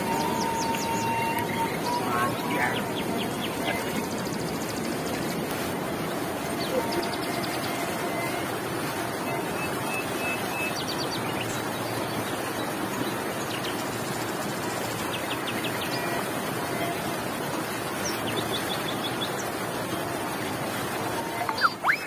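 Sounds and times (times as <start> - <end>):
bird chirping: 0.0 - 5.4
river rapids rushing over rocks: 0.0 - 22.0.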